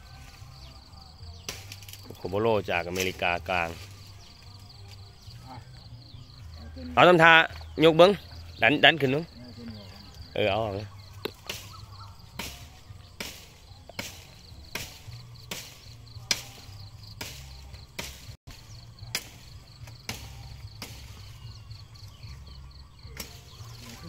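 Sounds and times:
machete chopping branches: 0:01.4 - 0:02.1, 0:02.9 - 0:04.3, 0:11.1 - 0:21.6, 0:23.0 - 0:24.0.

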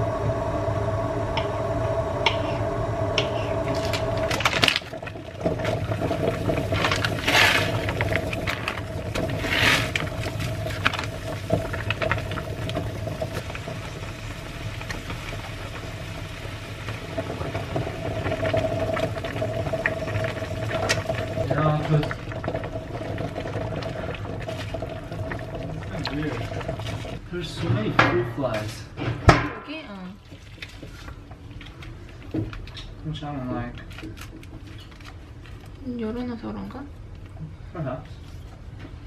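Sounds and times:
steady hum: 0:00.0 - 0:33.4
pot boiling on hob: 0:00.0 - 0:39.0
plastic and foil packets crinkling: 0:03.8 - 0:12.8.

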